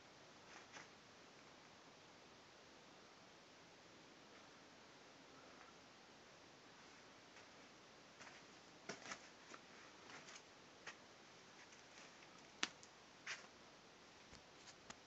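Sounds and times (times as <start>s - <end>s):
clicks and crackles of movement: 11.6s - 13.5s, 14.3s - 15.0s.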